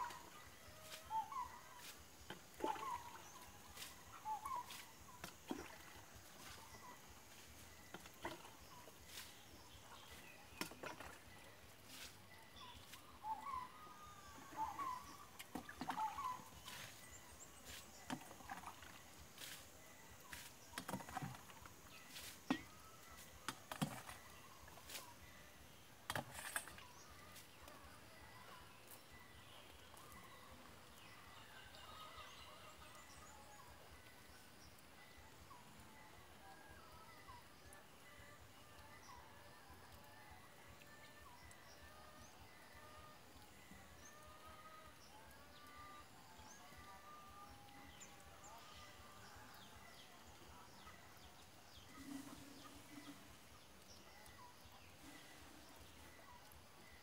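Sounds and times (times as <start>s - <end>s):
faint bird calls: 12.0s - 19.6s.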